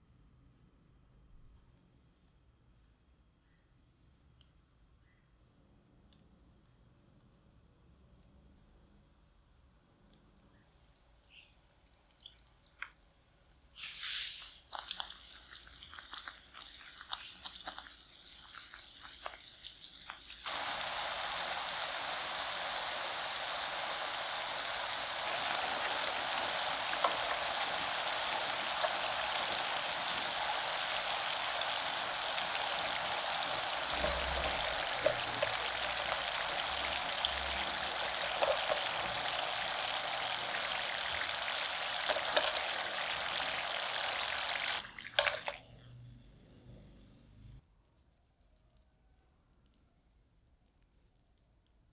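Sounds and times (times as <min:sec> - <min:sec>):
oil popping: 0:11.8 - 0:45.6
oil sizzling in a frying pan: 0:13.8 - 0:45.6.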